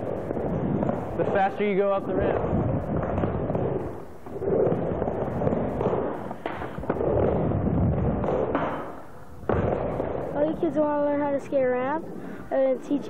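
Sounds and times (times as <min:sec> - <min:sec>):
skateboard clacks: 0:00.0 - 0:10.6
skateboard wheels rolling on ramp: 0:00.0 - 0:11.6.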